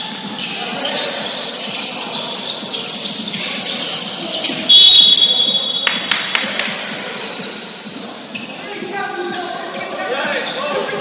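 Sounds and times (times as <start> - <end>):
referee's whistle blast: 4.7 - 6.0.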